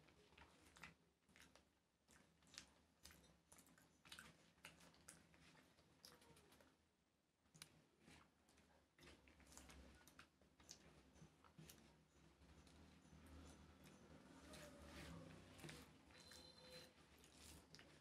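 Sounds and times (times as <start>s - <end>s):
wet clicks of eating by hand: 0.1s - 6.8s, 7.5s - 14.1s.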